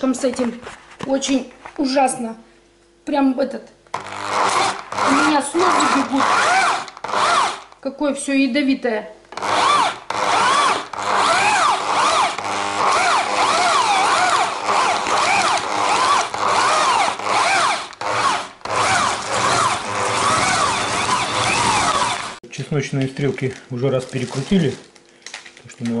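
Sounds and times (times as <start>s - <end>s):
electric drill motor whine: 3.9s - 7.8s, 9.3s - 22.4s
meat grinder grinding: 3.9s - 7.8s, 9.3s - 22.4s.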